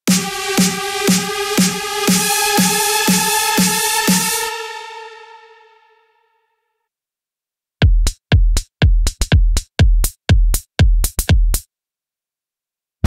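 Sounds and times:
electronic drum beat: 0:00.0 - 0:04.6, 0:07.8 - 0:11.6.

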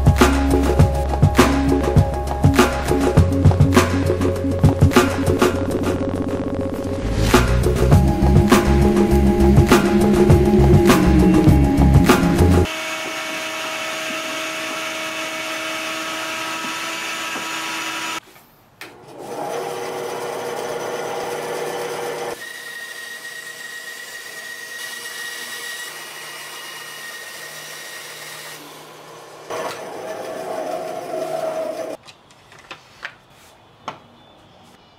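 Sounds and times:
shop vacuum running: 0:09.6 - 0:18.2, 0:18.8 - 0:32.0
power tool running: 0:10.0 - 0:18.2, 0:19.1 - 0:32.0
bandsaw cutting wood: 0:12.1 - 0:18.2, 0:19.1 - 0:32.0.

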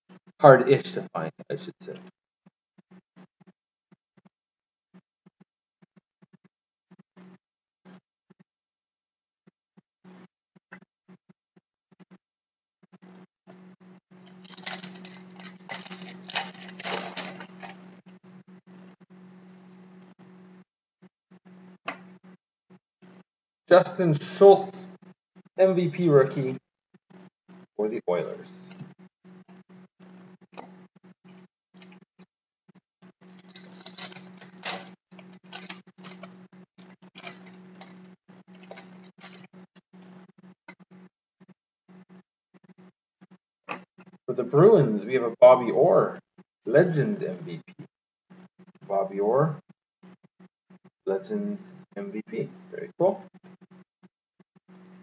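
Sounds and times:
low electrical hum: 0:14.1 - 0:20.6, 0:23.0 - 0:26.6, 0:27.5 - 0:32.0, 0:33.2 - 0:40.5
foil wrapper crinkling: 0:14.2 - 0:18.0, 0:33.2 - 0:39.5.

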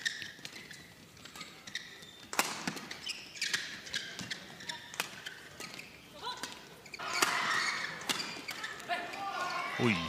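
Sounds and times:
shoes squeaking on court: 0:00.0 - 0:09.3
rackets hitting shuttlecock: 0:02.3 - 0:05.8, 0:06.4 - 0:08.9.

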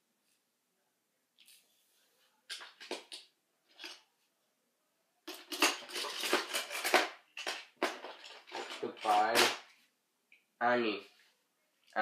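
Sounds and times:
toy trains clattering: 0:02.5 - 0:04.0, 0:05.3 - 0:09.7.

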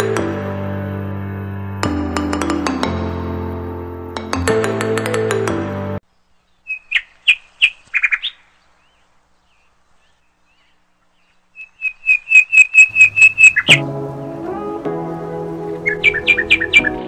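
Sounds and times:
small bird chirping: 0:06.1 - 0:13.8, 0:15.8 - 0:17.0.

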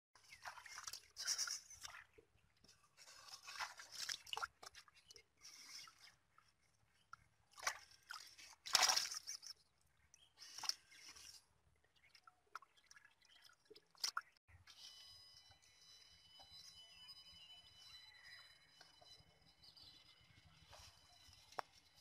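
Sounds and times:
fish splashing in water: 0:07.6 - 0:09.6.

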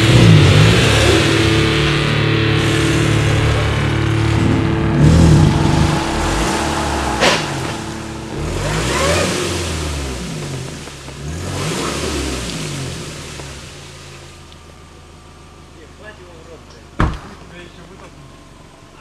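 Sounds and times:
car engine revving: 0:00.0 - 0:19.0.

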